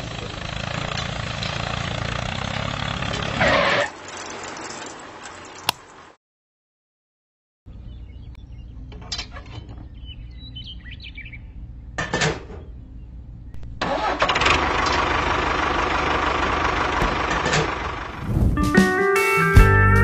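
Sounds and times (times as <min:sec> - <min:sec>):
low engine hum: 0:12.6 - 0:18.8
loud motor running: 0:14.2 - 0:18.2.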